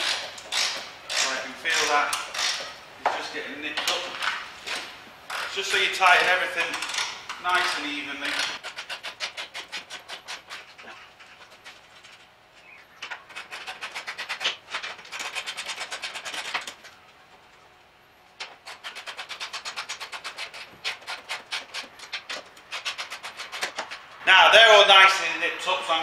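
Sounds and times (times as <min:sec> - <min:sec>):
ratchet wrench clicking: 0:00.0 - 0:02.6.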